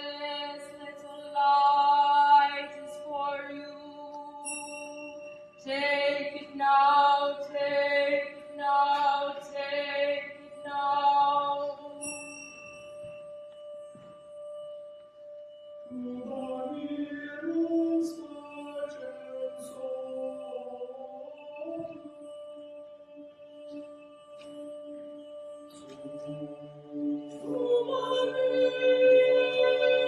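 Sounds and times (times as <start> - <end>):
brief high chime: 4.4 - 5.6, 12.0 - 13.3
people singing: 15.9 - 25.0, 25.7 - 30.0.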